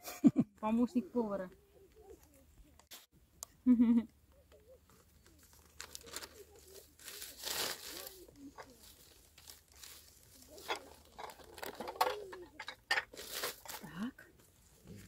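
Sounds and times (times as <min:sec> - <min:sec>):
crinkling and rustling: 0:04.4 - 0:15.0.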